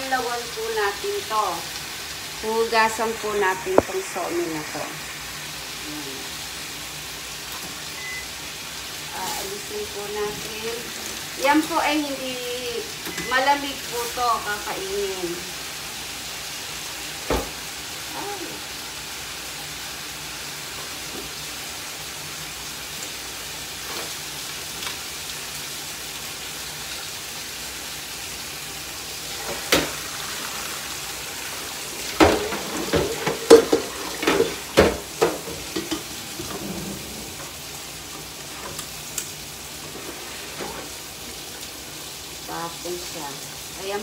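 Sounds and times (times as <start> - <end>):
tap running into a sink: 17.3 - 17.6, 32.1 - 36.6.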